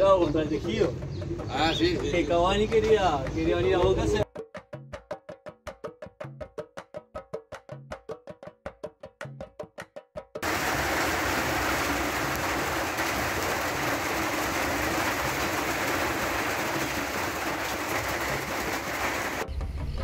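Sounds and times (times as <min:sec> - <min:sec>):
heavy rain falling: 0:10.4 - 0:19.4.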